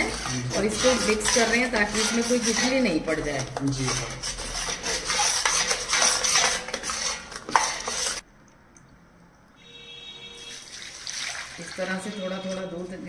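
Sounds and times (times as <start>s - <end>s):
metal spatula scraping a pan: 0.0s - 8.2s.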